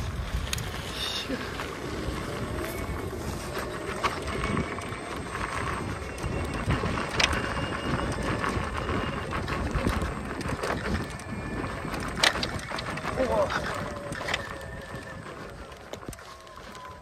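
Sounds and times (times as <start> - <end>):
wind on microphone: 0.0 - 17.0
clicks and knocks from stones: 9.4 - 17.0.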